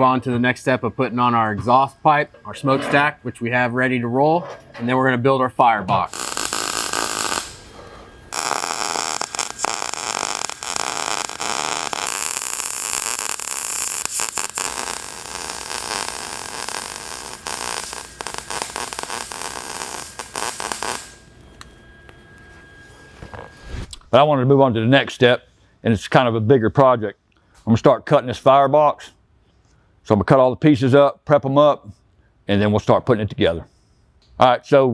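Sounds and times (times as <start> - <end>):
welding arc crackling: 6.0 - 21.4.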